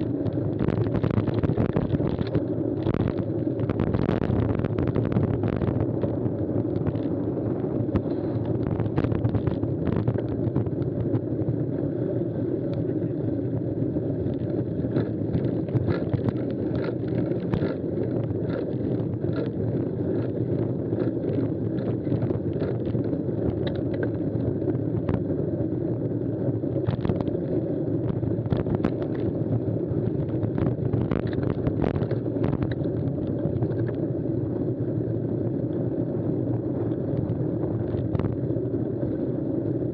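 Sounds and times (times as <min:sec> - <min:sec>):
bike clicks and rattles: 0:00.0 - 0:07.2, 0:07.8 - 0:11.3, 0:12.6 - 0:25.4, 0:26.7 - 0:34.2
bike tyres rumbling on rough track: 0:00.0 - 0:39.9.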